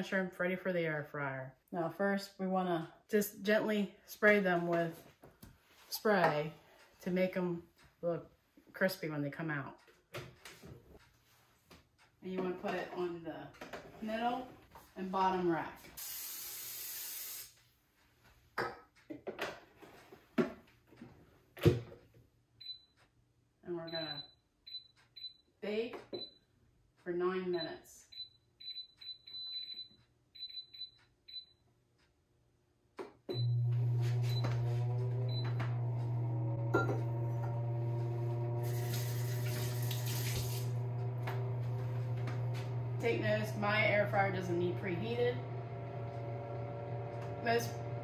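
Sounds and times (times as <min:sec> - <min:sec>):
water tap running: 0:16.0 - 0:17.5, 0:35.0 - 0:43.0
cooking spray hissing: 0:16.0 - 0:17.6, 0:38.6 - 0:40.8
control panel beep: 0:23.9 - 0:25.4
air fryer fan hum: 0:33.4 - 0:48.0.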